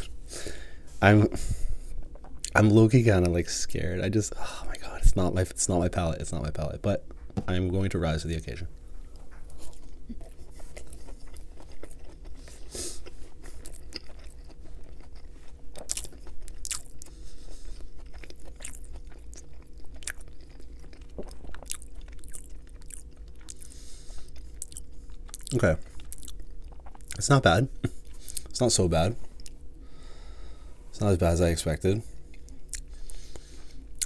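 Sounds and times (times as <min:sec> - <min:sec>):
crunchy chewing: 0:09.1 - 0:27.3
biting crispy food: 0:09.7 - 0:23.7.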